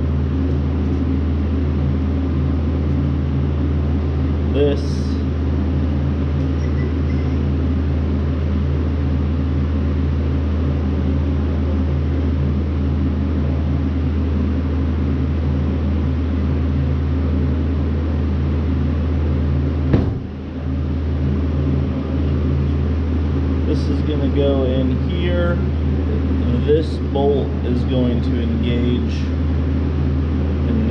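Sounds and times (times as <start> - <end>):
low machine hum: 0.0 - 30.9
sharp knock: 19.9 - 20.4.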